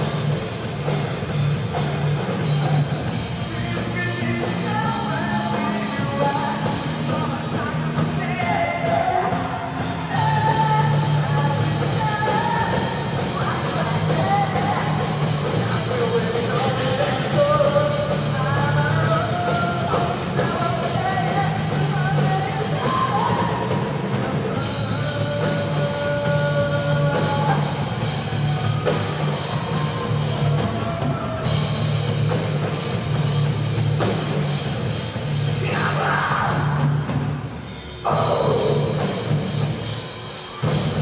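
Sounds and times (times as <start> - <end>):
drum kit beat: 0.0 - 41.0
person singing and shouting: 3.3 - 31.6, 35.5 - 37.1, 38.0 - 39.4.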